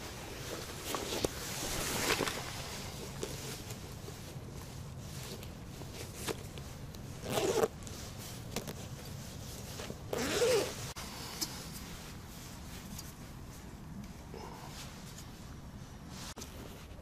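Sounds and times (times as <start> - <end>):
zipper rasping: 7.2 - 7.8, 10.1 - 10.9.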